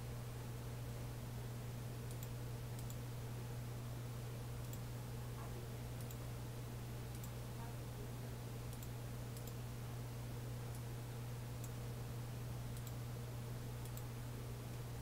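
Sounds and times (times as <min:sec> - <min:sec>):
steady low hum: 0:00.0 - 0:15.0
computer mouse clicks: 0:02.1 - 0:03.0, 0:04.6 - 0:04.8, 0:06.0 - 0:06.2, 0:07.1 - 0:07.4, 0:08.7 - 0:09.6, 0:12.7 - 0:13.0, 0:13.8 - 0:14.1.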